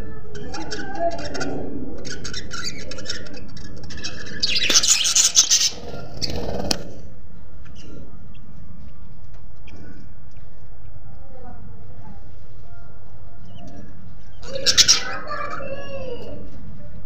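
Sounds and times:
budgerigars chirping: 0:00.4 - 0:06.8, 0:14.3 - 0:15.6.

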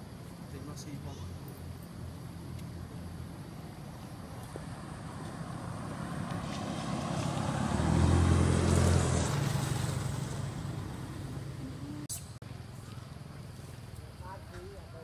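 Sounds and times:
vehicle driving past: 0:04.1 - 0:12.1.

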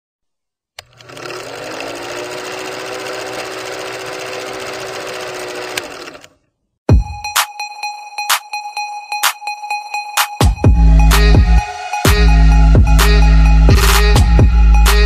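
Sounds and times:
film projector whirring: 0:00.8 - 0:06.4.

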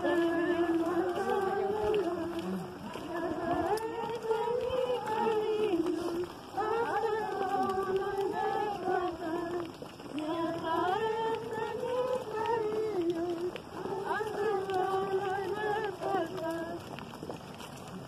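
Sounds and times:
crowd singing a hymn in unison: 0:00.0 - 0:16.8.

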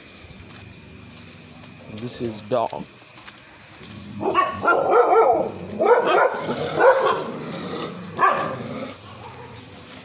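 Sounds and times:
dogs barking and yelping: 0:03.9 - 0:09.7.

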